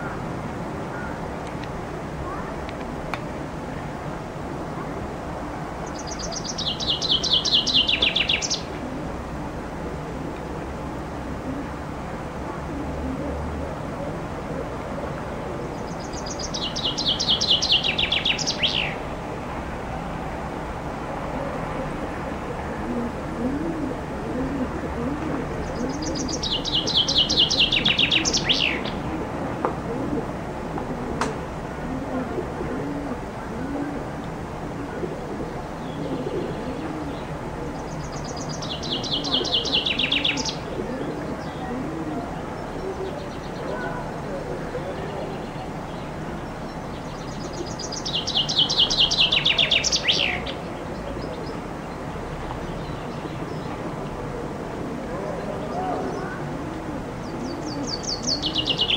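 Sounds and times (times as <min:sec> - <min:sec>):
low repeated cooing: 0:00.0 - 0:02.7, 0:06.8 - 0:20.0, 0:20.9 - 0:58.9
steady low background noise: 0:00.0 - 0:58.9
chaffinch singing: 0:05.8 - 0:08.9, 0:15.6 - 0:19.2, 0:25.4 - 0:29.2, 0:35.4 - 0:54.4, 0:55.3 - 0:58.9.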